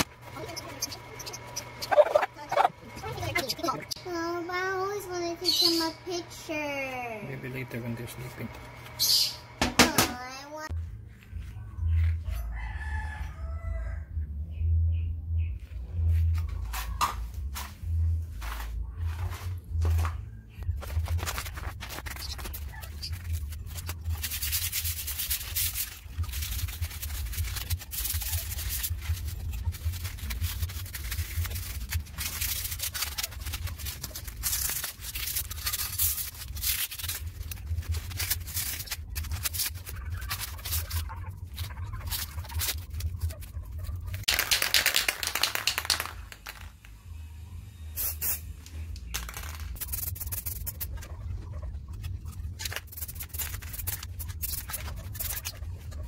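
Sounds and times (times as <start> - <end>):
sandpaper rubbing metal: 0.0 - 3.6, 20.9 - 44.2, 49.8 - 51.1, 52.4 - 56.0.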